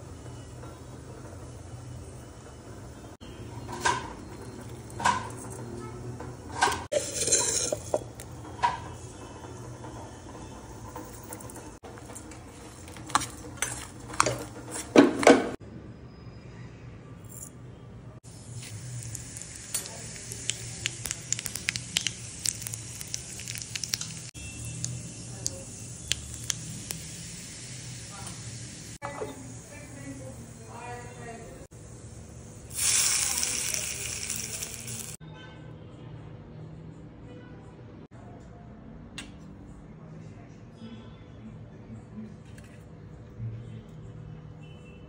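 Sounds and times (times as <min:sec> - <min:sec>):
spoons clinking on steel bowls: 0:06.6 - 0:08.2
spice seeds sizzling in hot oil: 0:06.9 - 0:11.7, 0:18.3 - 0:31.2, 0:31.8 - 0:35.2
sharp pops and crackles: 0:19.1 - 0:27.0.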